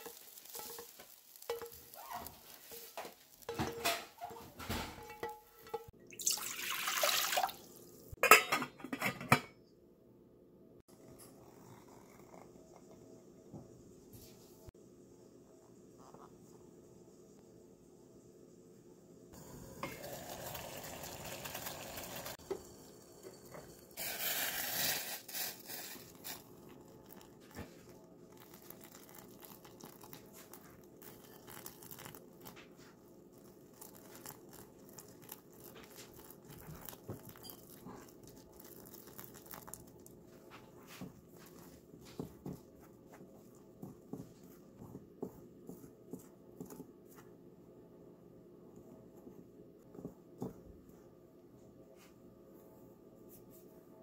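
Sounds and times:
chopsticks stirring in ceramic bowl: 0.0s - 4.4s
liquid pouring into bowl: 6.1s - 7.9s, 26.7s - 32.5s, 33.4s - 40.1s.

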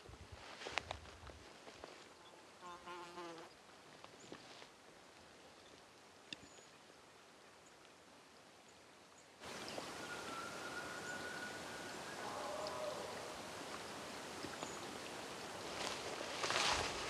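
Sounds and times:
distant elk bugling: 9.9s - 13.4s.

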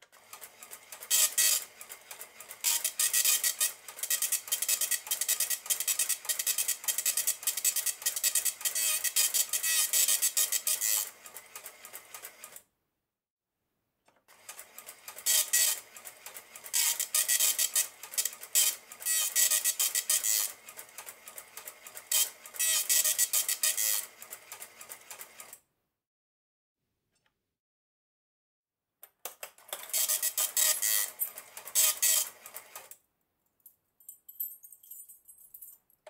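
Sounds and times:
dot matrix printer printing: 0.1s - 12.6s, 14.3s - 25.6s, 29.8s - 32.9s.

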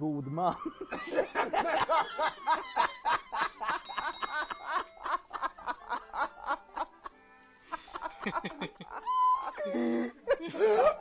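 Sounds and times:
men laughing hard: 0.6s - 11.0s.

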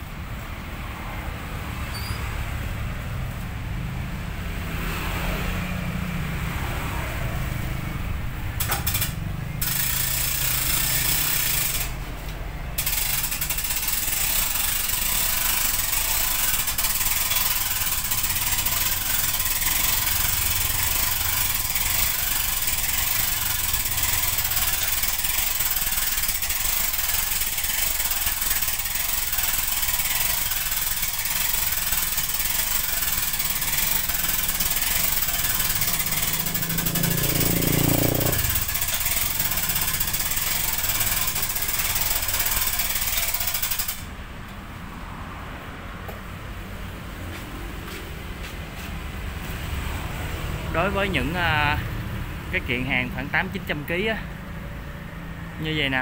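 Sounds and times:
low vehicle engine hum: 0.0s - 55.8s
street traffic: 0.0s - 56.0s
hand winch clicking: 8.6s - 44.6s.

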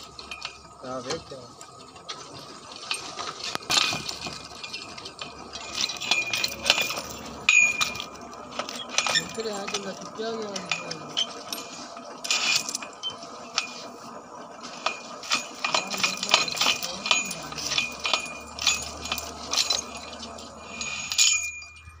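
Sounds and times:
pipe wrench clinking on pipe: 3.6s - 9.9s, 14.8s - 22.0s
short metallic ringing: 16.9s - 22.0s.

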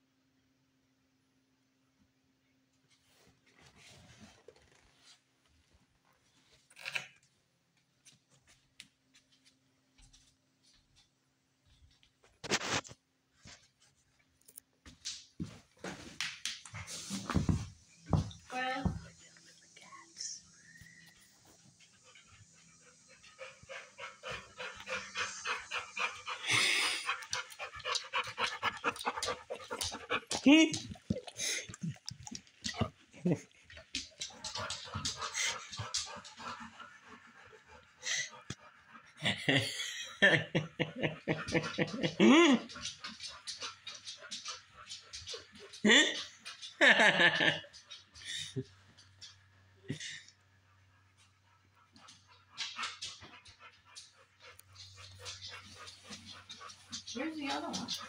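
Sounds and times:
dog panting rapidly: 21.2s - 31.4s, 33.5s - 39.2s, 51.1s - 58.0s.

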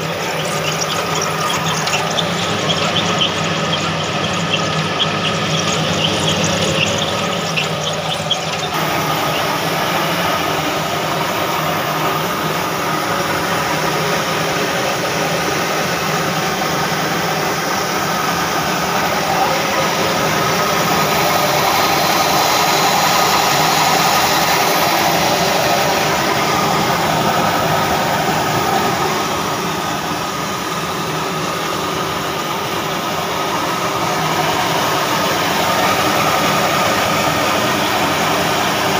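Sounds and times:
flour mill machinery running: 0.0s - 38.9s.

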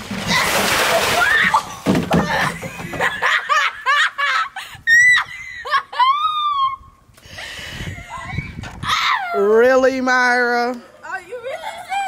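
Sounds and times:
water splashing: 0.0s - 3.3s
laughter: 2.3s - 4.6s, 5.2s - 6.2s
girl shrieking and gasping: 7.8s - 9.4s.

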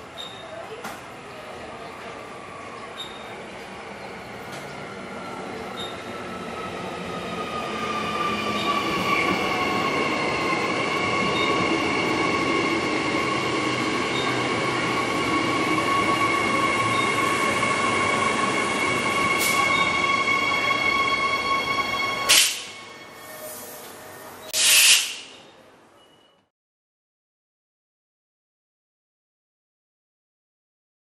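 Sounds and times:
electric train whine: 1.7s - 24.8s
train running hiss: 17.5s - 25.3s.

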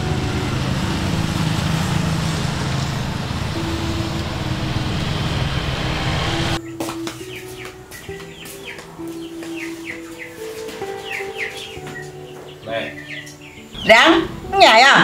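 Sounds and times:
vehicle engine running: 0.0s - 6.6s
street traffic: 0.0s - 15.0s.

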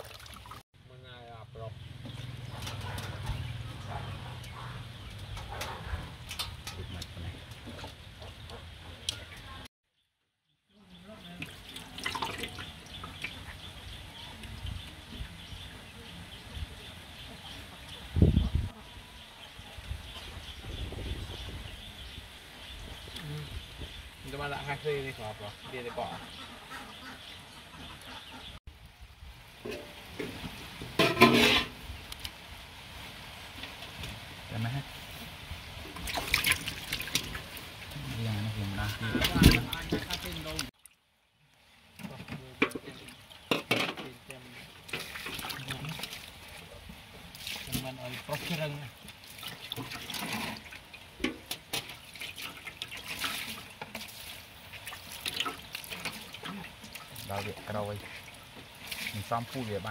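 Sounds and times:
water splashing in metal basin: 0.0s - 0.6s, 4.4s - 8.4s, 11.2s - 15.4s, 29.6s - 32.3s, 35.8s - 41.0s, 41.9s - 59.9s.

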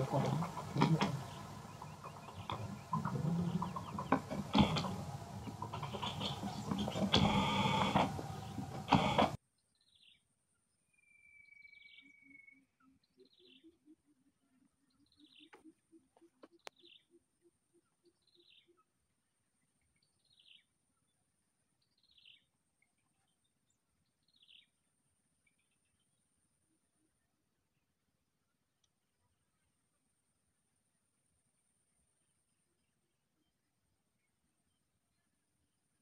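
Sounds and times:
bird chirping: 0.0s - 21.2s.

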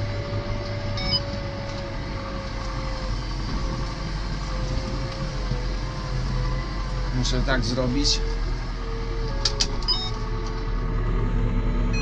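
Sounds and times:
tractor running: 0.0s - 12.0s
short electronic beep: 1.0s - 1.3s, 9.9s - 10.1s.

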